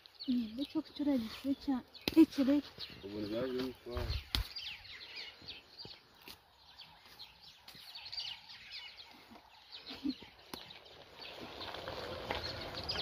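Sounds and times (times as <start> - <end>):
small birds chirping: 0.0 - 13.0
leaves snapping off hedge: 2.0 - 2.4, 4.2 - 4.6.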